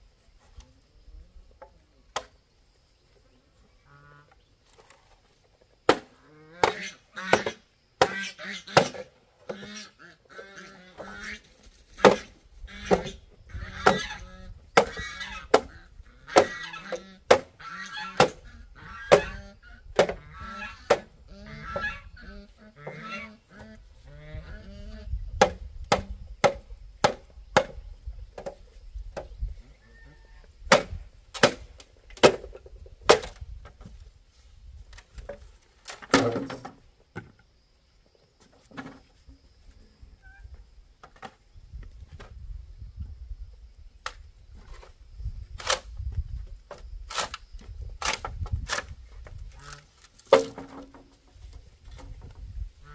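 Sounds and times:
farm fowl honking: 3.8 - 4.4, 6.1 - 25.1
tool striking wood: 25.4 - 27.8.

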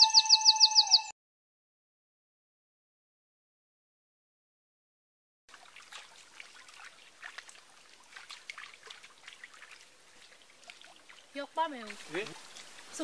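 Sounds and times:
small water splashes and trickles: 5.5 - 13.0.

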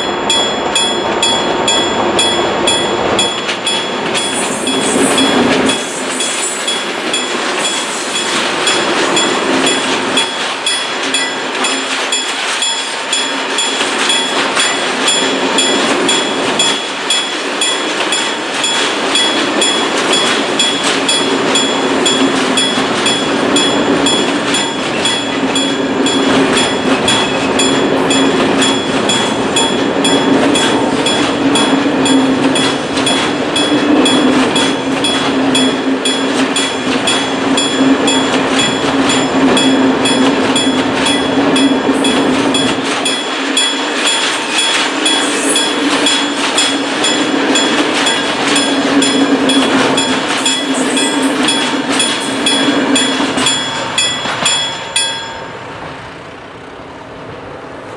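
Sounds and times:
crossing warning bell ringing: 0.0 - 56.8
freight train rumbling: 0.0 - 57.9.

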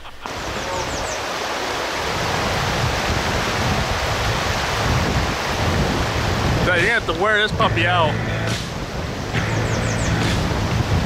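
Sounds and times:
river rushing: 0.0 - 11.0
wind buffeting microphone: 2.0 - 11.0
high chirps: 9.4 - 10.5.

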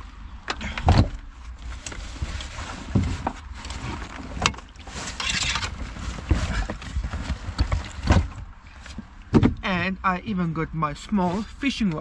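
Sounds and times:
thumps and knocks: 6.3 - 9.8.

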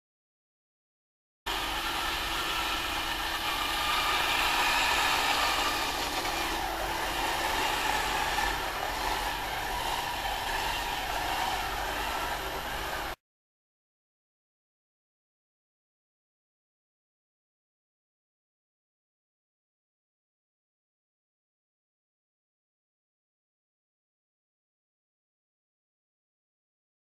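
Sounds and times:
robot drive motors whirring: 1.5 - 13.2.

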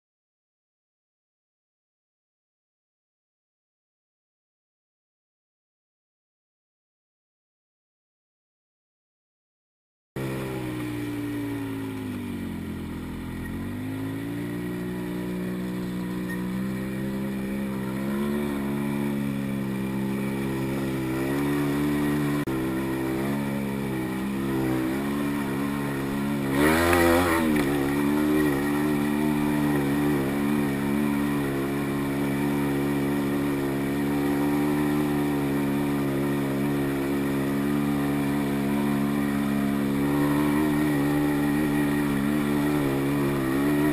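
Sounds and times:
atv engine running: 10.2 - 43.9.

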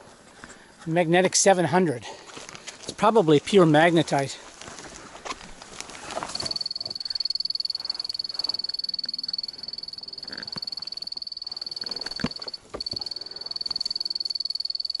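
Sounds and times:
high-pitched pulsing alarm beep: 6.3 - 15.0.

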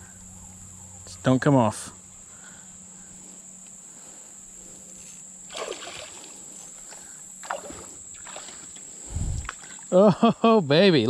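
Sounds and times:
insects buzzing: 0.0 - 11.0
fish splashing at surface: 5.5 - 6.3.

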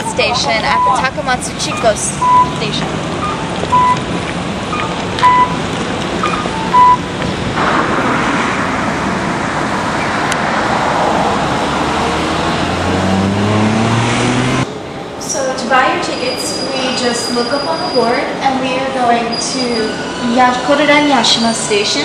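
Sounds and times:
pedestrian crossing beeps: 0.0 - 7.2
steady traffic noise: 0.0 - 22.0
vehicle engine speeding up: 7.4 - 14.7.

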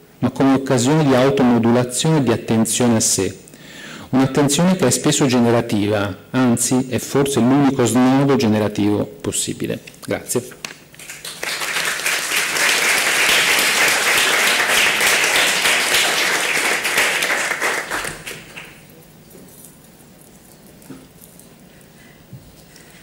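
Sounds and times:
audience applauding: 11.0 - 18.8.

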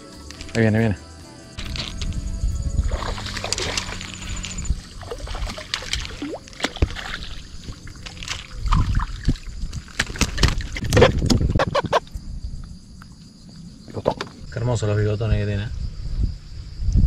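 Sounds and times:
water sloshing and splashing: 2.8 - 12.0
fish flapping against plastic hull: 2.9 - 12.0.

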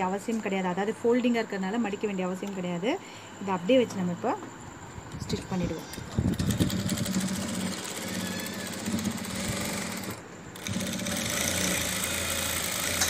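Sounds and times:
sewing machine running: 6.1 - 13.0.

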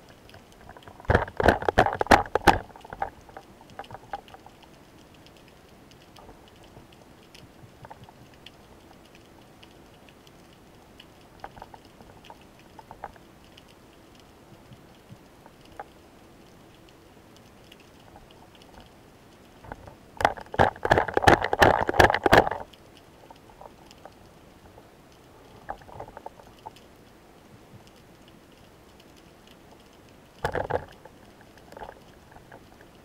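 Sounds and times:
underwater background: 0.0 - 33.0
underwater clicks and knocks: 0.2 - 4.7, 11.4 - 13.7, 19.6 - 24.3, 25.6 - 26.9, 29.8 - 33.0.

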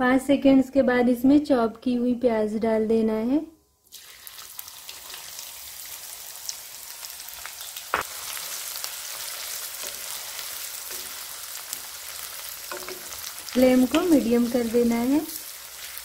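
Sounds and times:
onion sizzling in hot oil: 3.9 - 16.0.

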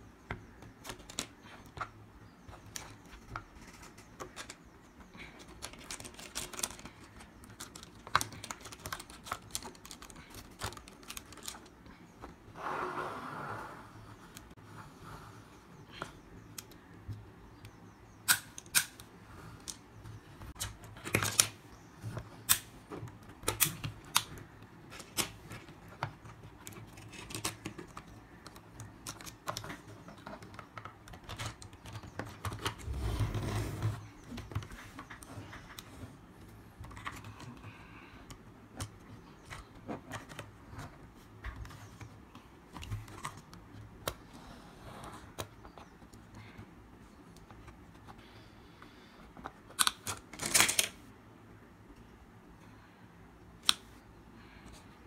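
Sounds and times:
toy sliding on table: 12.6 - 14.0.

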